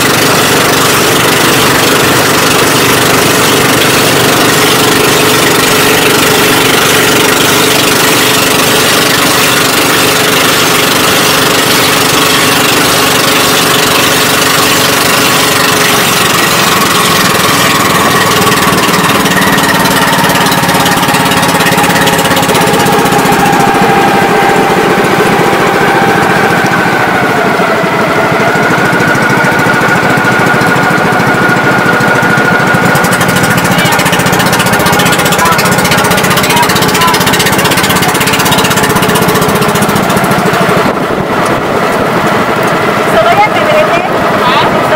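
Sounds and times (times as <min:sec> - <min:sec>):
boat engine running: 0:00.0 - 0:44.9.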